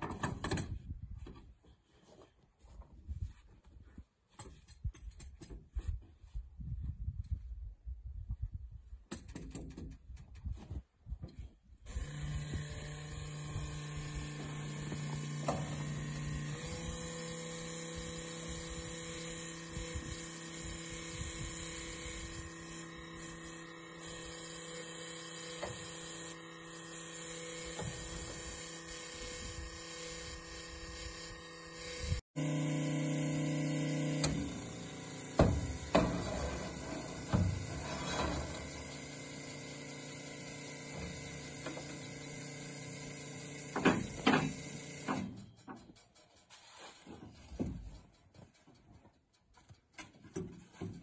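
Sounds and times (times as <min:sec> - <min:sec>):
electric fuel pump humming: 0:11.8 - 0:45.4.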